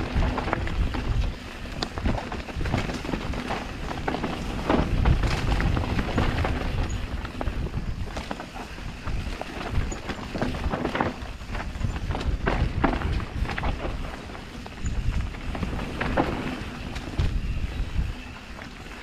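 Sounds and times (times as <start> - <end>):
bike rattling clicks and knocks: 0.0 - 19.0
bike tyres rumbling over dirt: 0.0 - 19.0.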